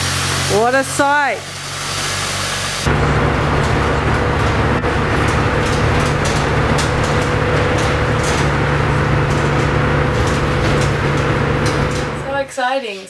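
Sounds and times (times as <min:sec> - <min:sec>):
engine hum: 0:02.7 - 0:12.5
road and wind noise: 0:02.8 - 0:12.3.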